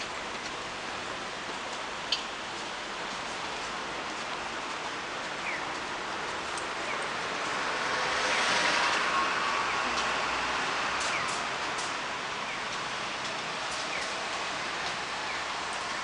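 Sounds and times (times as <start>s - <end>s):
road traffic hiss: 0.0s - 16.0s
vehicle passing: 7.2s - 11.8s.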